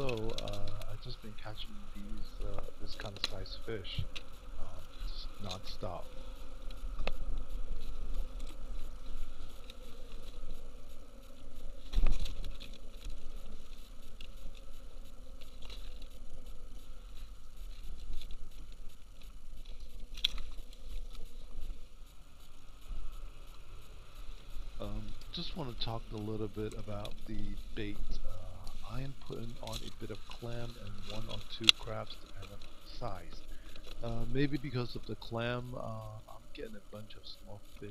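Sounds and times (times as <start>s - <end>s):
small clicks and knocks: 0.0s - 1.2s, 2.4s - 4.4s
low steady rumble: 0.0s - 37.9s.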